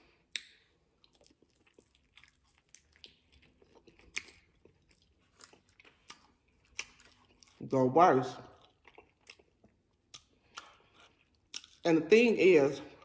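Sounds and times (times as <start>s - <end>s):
chewing and wet mouth clicks: 0.3s - 7.6s, 8.4s - 11.9s.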